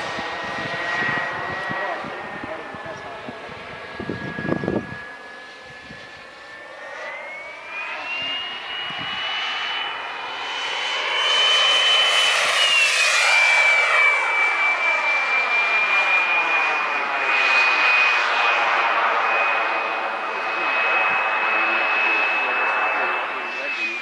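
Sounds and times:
model jet turbine whining: 0:00.0 - 0:24.0.

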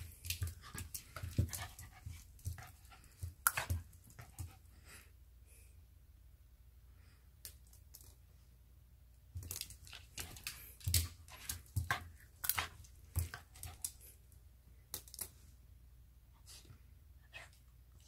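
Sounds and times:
dog playing with pen on floor: 0:00.0 - 0:04.9, 0:09.3 - 0:15.5.

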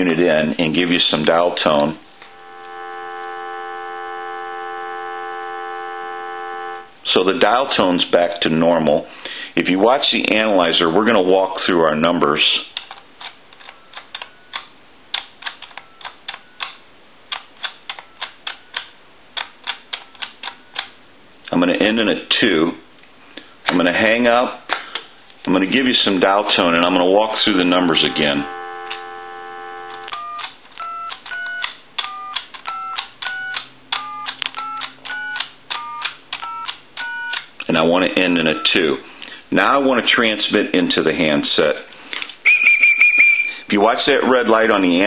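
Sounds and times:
faint short tone: 0:27.9 - 0:30.2
telephone keypad button clicks: 0:29.9 - 0:37.5.

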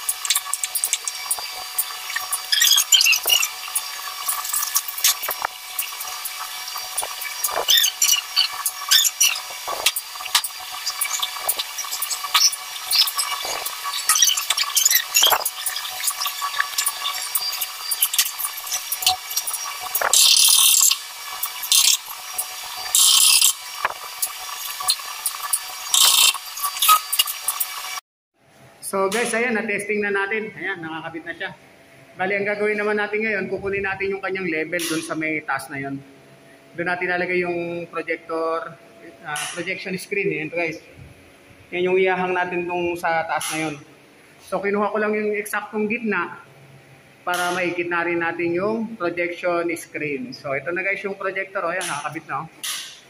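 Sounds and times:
squeaky bursts: 0:00.0 - 0:22.1, 0:24.8 - 0:27.6
ratchet wrench clicking: 0:00.0 - 0:27.9.

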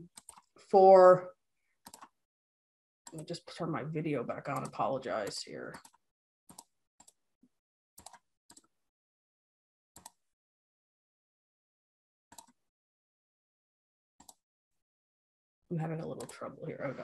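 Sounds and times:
computer clicks: 0:00.1 - 0:00.5, 0:01.9 - 0:02.1, 0:04.5 - 0:07.2, 0:10.0 - 0:10.2, 0:12.3 - 0:12.6.

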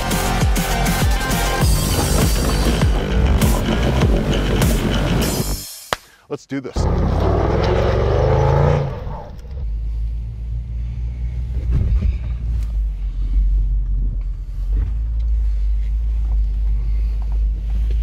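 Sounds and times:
car cabin rumble: 0:01.6 - 0:05.4, 0:09.2 - 0:18.0.

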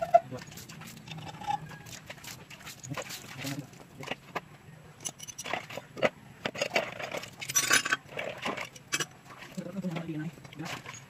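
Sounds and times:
metal hand tools clinking: 0:07.4 - 0:08.0.

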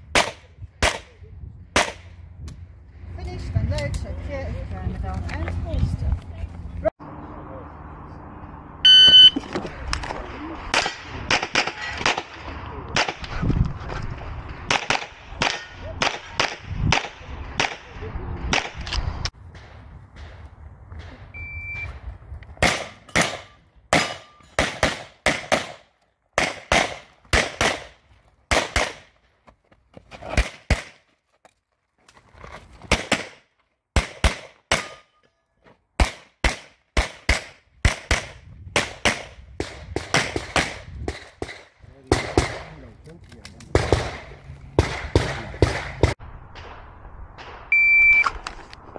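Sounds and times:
shot timer beep: 0:08.8 - 0:09.4, 0:21.4 - 0:21.9, 0:47.7 - 0:48.3.

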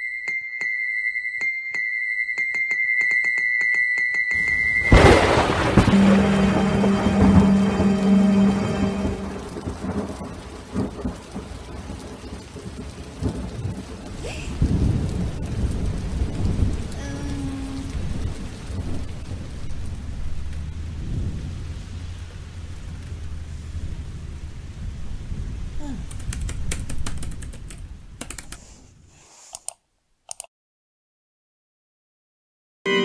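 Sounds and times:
steady rain: 0:04.3 - 0:29.0
low thunder rumbling: 0:04.4 - 0:28.3.

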